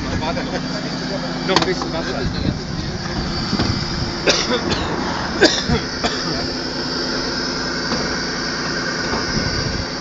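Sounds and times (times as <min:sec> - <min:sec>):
engine running with high whine: 0:00.0 - 0:10.0.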